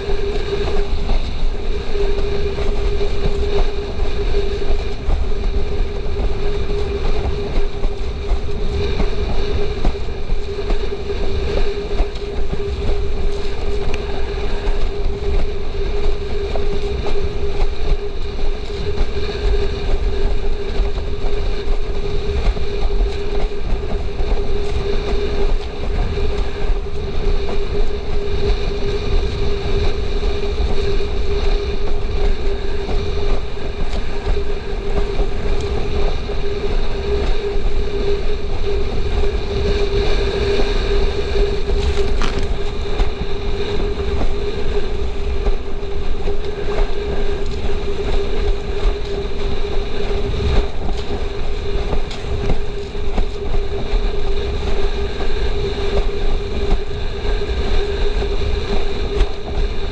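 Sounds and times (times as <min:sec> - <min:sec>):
steady hum: 0:00.0 - 0:59.9
wind buffeting microphone: 0:00.0 - 0:59.9
water rushing and slapping: 0:41.6 - 0:57.6.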